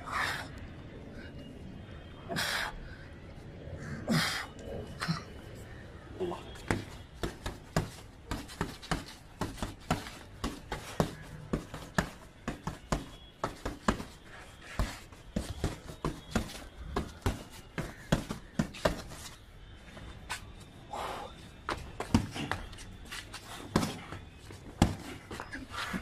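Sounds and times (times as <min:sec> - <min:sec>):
fists punching a bag: 0:06.6 - 0:19.2, 0:21.7 - 0:22.7, 0:23.6 - 0:25.3.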